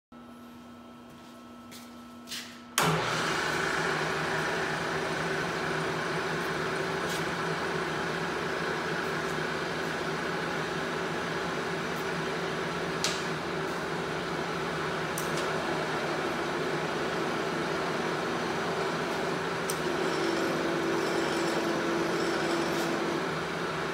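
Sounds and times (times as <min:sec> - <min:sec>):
milling machine motor whine: 0:02.8 - 0:12.9, 0:13.9 - 0:23.9.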